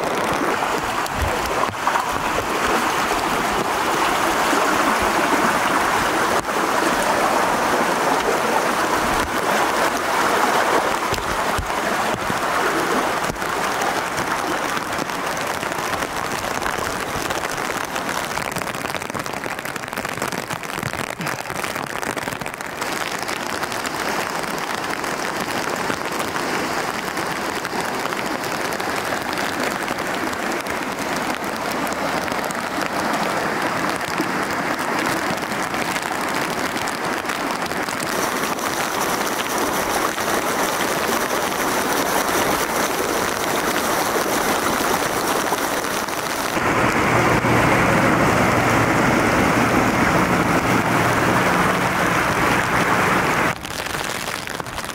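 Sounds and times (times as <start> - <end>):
heavy rain: 0.0 - 54.9
rushing floodwater: 0.0 - 54.9
tractor engine humming: 46.2 - 53.6.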